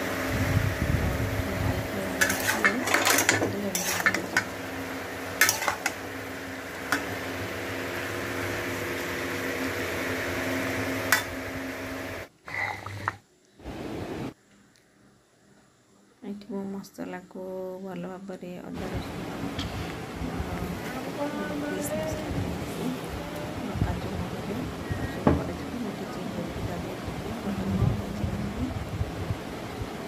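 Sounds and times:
steady hum: 0.0s - 30.0s
metal spatula scraping metal pan: 2.2s - 4.6s, 5.4s - 6.0s.

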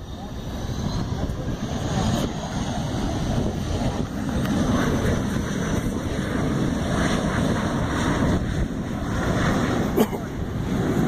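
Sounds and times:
aircraft engines rumbling: 0.0s - 11.0s
wind buffeting microphone: 0.0s - 11.0s.

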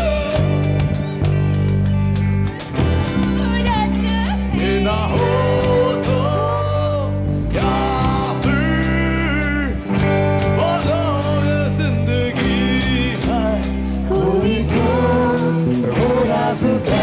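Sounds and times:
live rock band: 0.0s - 17.0s
person singing into microphone: 3.0s - 9.9s, 10.5s - 17.0s.

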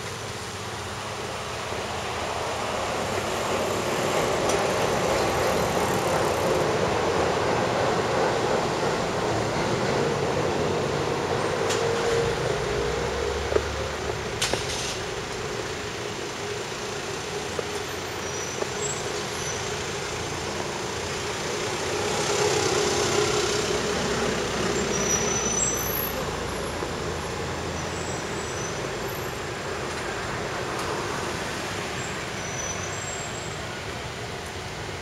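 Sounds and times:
urban traffic noise: 0.0s - 35.0s
vehicle passing: 20.4s - 27.8s.

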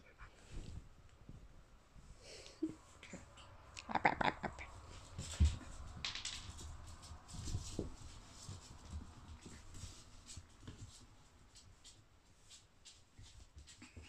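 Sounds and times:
puppy paws on wooden floor: 4.6s - 14.0s.

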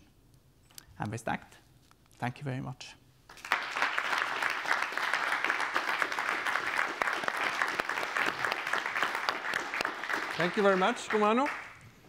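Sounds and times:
audience applauding: 3.3s - 11.8s.

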